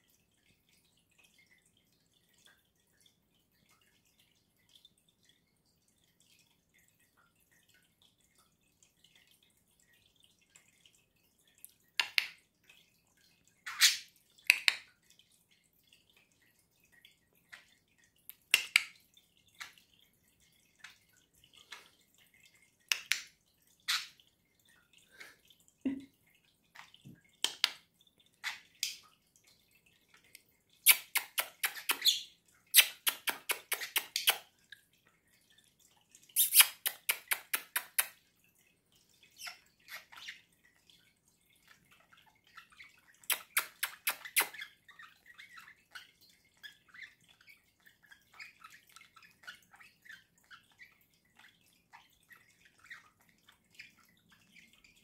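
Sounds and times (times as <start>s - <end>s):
mouth clicks and pops: 30.8s - 34.4s, 36.4s - 38.1s, 43.3s - 44.6s
budgerigar imitating tongue clicks: 30.8s - 34.5s, 36.4s - 38.2s, 43.2s - 44.7s.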